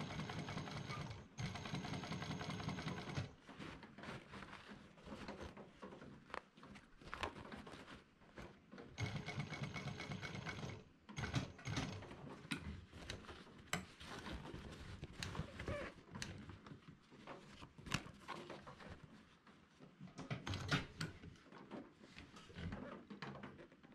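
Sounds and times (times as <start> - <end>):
sewing machine stitching canvas: 0.0 - 3.5, 8.8 - 13.3
canvas rustling: 3.4 - 8.5.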